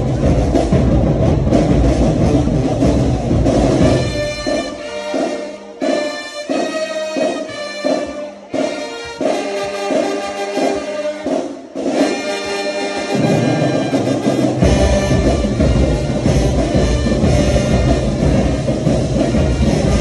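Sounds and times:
heavy bass drum: 0.0s - 4.8s, 14.2s - 20.0s
low drums: 0.0s - 20.0s
marching band brass chords: 0.0s - 20.0s.

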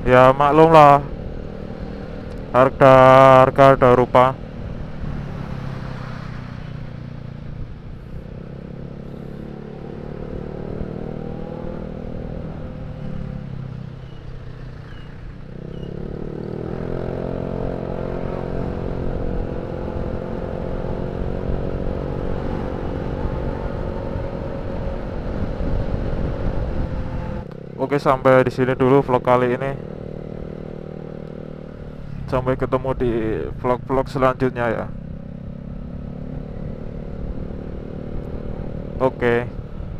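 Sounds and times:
scooter engine accelerating: 8.3s - 27.8s
wind rumbling on microphone: 16.5s - 27.6s.

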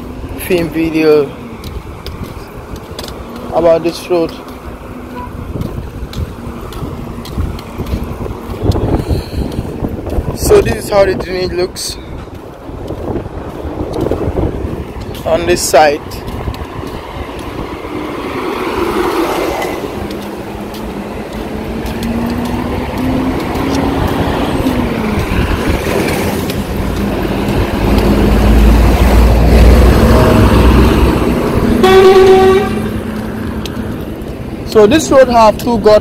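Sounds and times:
vehicle engines passing: 0.0s - 36.0s
car horn toot: 5.1s - 5.4s, 31.8s - 33.0s.

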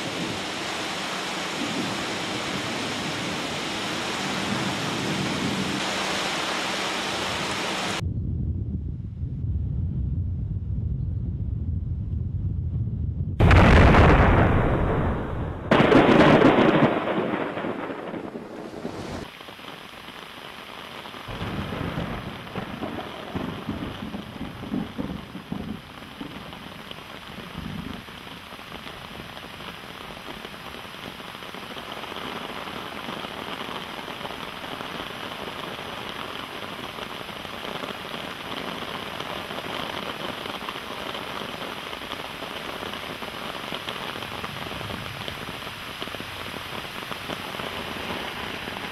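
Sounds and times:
heavy rain: 0.0s - 8.0s, 13.4s - 48.9s
low rumbles of thunder: 8.0s - 19.3s, 21.3s - 26.6s
thunderclap: 8.0s - 19.3s, 21.3s - 26.6s.

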